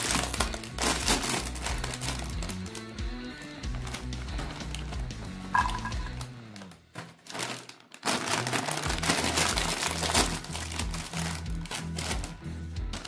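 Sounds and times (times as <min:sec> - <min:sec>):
snack bag crinkling open: 0:00.0 - 0:13.0
music with repeating bass line: 0:05.0 - 0:06.2.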